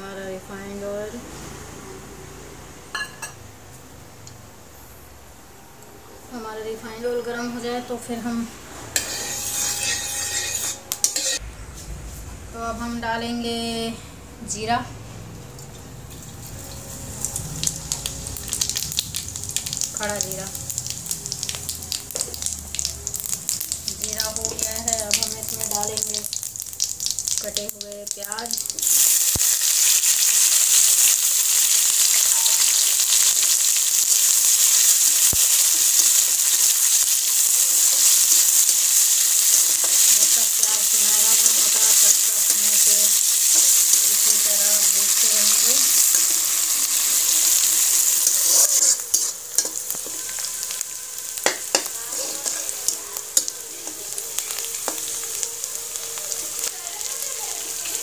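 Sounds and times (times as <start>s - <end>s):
metal spatula scraping a pan: 8.9s - 11.4s, 34.5s - 50.8s, 51.4s - 55.4s
onions sizzling in hot oil: 9.0s - 11.4s, 15.6s - 58.0s.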